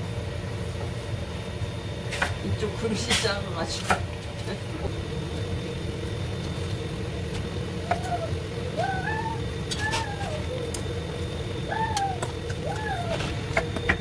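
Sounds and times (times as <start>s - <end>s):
low kitchen hum: 0.0s - 14.0s
child's high calls: 7.9s - 10.8s, 11.7s - 13.3s.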